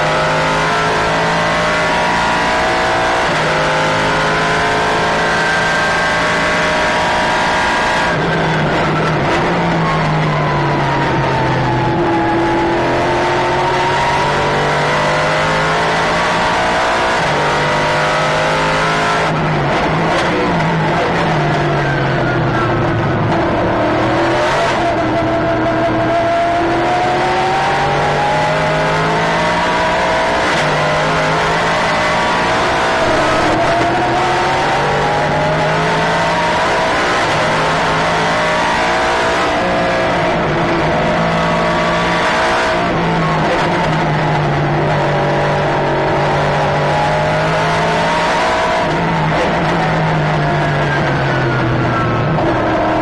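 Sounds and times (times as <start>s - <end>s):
race car engine: 0.0s - 53.0s
road and wind noise: 0.0s - 53.0s.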